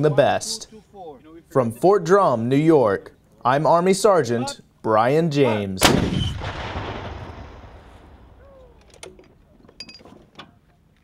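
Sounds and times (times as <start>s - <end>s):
artillery shot echo: 5.8s - 8.8s.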